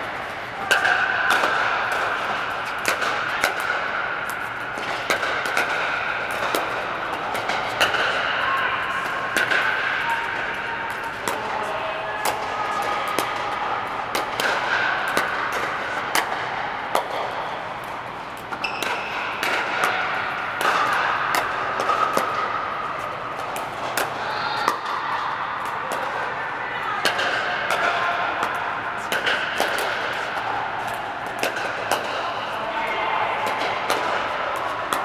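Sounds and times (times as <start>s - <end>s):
balls bouncing: 0.6s - 8.4s, 12.2s - 26.2s.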